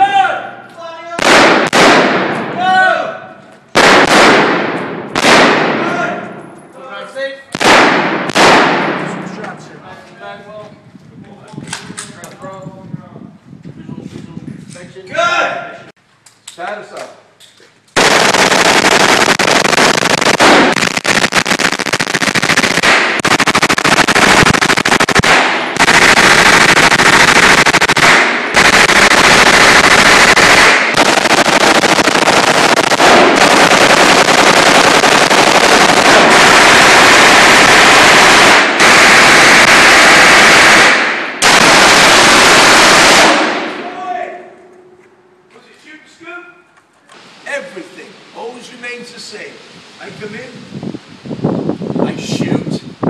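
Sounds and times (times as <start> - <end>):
submachine guns firing full-auto: 1.2 - 2.5, 3.7 - 5.8, 7.5 - 9.2, 18.0 - 43.7.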